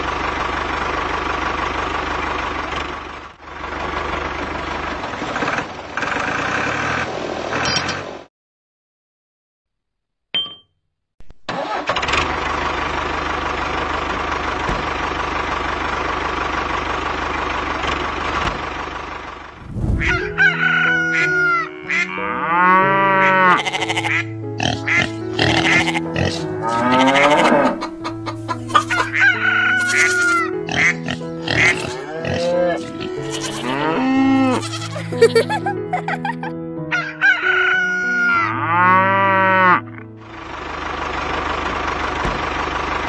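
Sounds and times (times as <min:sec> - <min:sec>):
rooster crowing: 0:20.0 - 0:21.7, 0:26.6 - 0:30.4, 0:36.9 - 0:38.5
background music: 0:20.0 - 0:40.3
chicken clucking: 0:24.7 - 0:33.7.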